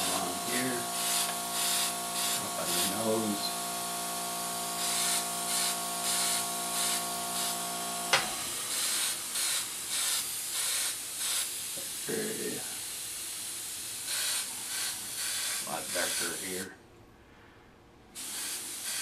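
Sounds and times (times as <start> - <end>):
steady hum: 0.0 - 11.2
airbrush hissing: 0.0 - 16.7, 18.2 - 19.0.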